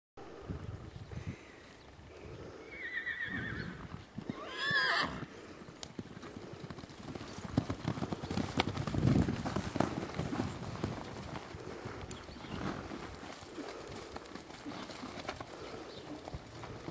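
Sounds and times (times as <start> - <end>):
horse whinnying: 2.7 - 5.3
hoofbeats on grass and mud: 3.8 - 16.9.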